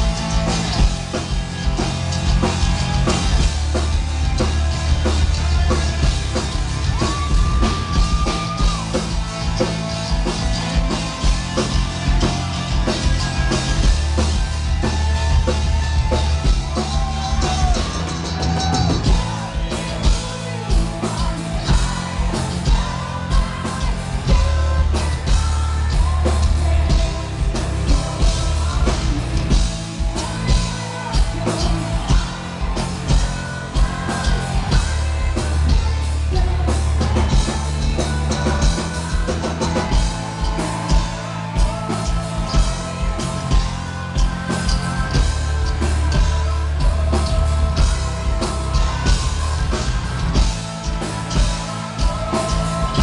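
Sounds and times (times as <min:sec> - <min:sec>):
bass guitar: 0:00.0 - 0:53.0
distorted guitars: 0:00.0 - 0:53.0
pounding drum kit: 0:00.0 - 0:53.0
sung vocals: 0:00.0 - 0:53.0.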